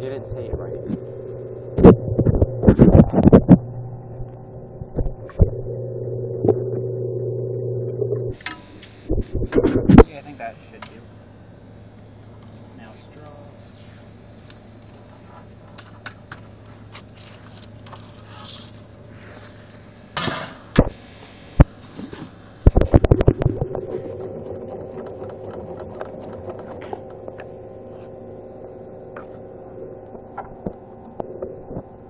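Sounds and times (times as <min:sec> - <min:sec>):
rustling and handling clatter: 0:13.8 - 0:20.7
machine rattle and hum: 0:22.6 - 0:32.0.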